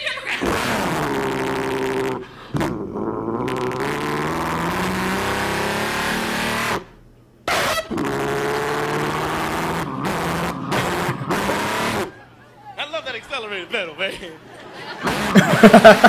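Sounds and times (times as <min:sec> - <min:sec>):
person imitating truck engine: 0:00.4 - 0:06.7, 0:07.8 - 0:12.4, 0:15.0 - 0:16.0.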